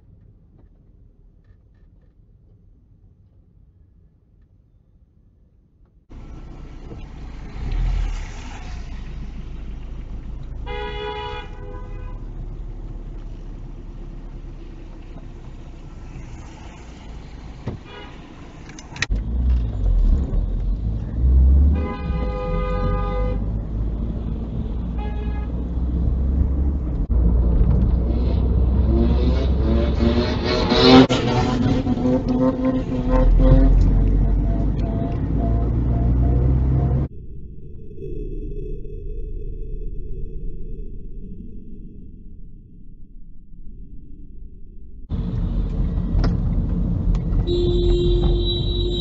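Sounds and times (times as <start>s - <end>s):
engine and road noise inside car: 5.8s - 37.1s, 45.1s - 49.0s
car horn blasts: 10.6s - 12.5s, 17.8s - 18.4s, 21.6s - 23.5s, 24.9s - 25.9s, 47.4s - 49.0s.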